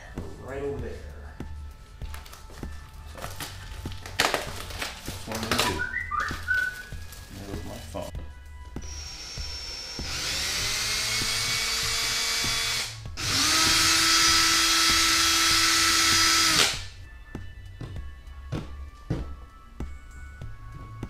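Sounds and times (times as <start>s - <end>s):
cordless drill against wall: 8.8s - 16.8s.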